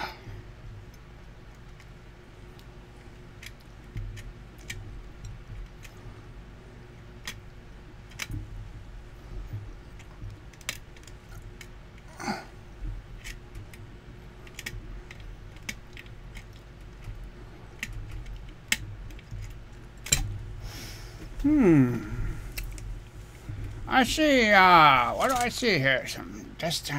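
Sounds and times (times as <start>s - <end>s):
lock pick metallic clicks: 17.8s - 20.4s.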